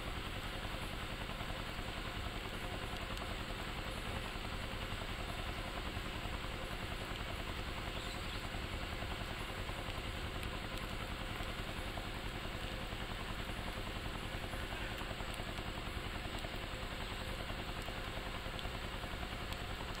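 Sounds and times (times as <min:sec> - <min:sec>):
low mechanical drone with flutter: 0:00.0 - 0:20.0.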